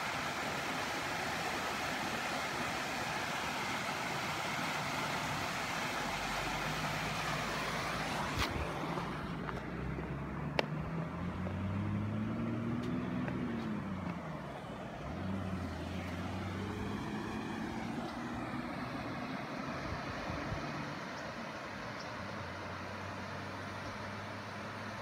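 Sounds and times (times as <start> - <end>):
vehicle driving past: 6.2 - 21.1.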